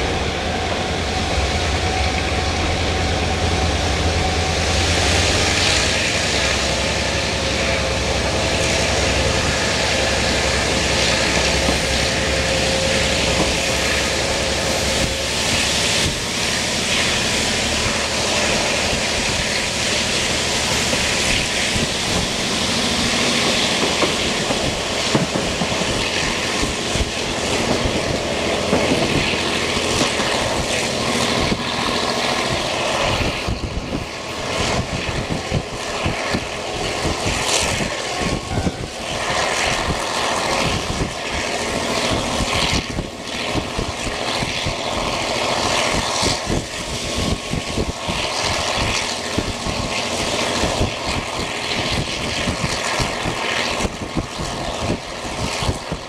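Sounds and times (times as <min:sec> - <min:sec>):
train running noise: 0:00.0 - 0:56.0
wind rushing through window: 0:04.8 - 0:56.0.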